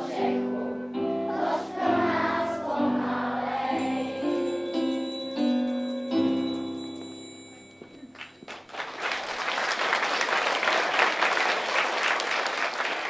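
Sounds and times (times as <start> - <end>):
audience applauding: 8.1 - 13.0.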